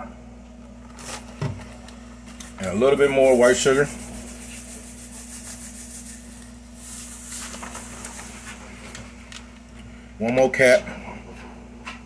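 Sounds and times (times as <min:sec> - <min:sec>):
steady low hum: 0:00.0 - 0:12.0
sugar poured into a bowl: 0:03.2 - 0:08.0.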